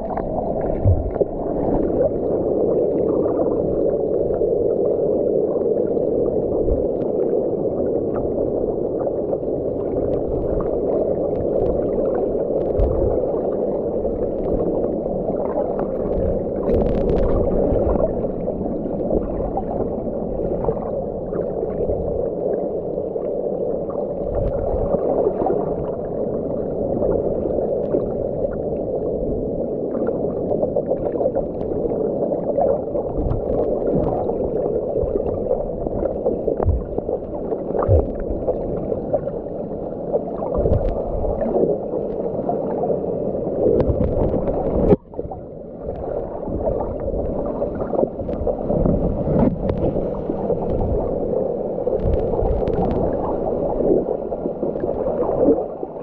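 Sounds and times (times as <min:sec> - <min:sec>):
underwater rushing drone: 0:00.0 - 0:56.0
dull low thumps: 0:00.8 - 0:01.2.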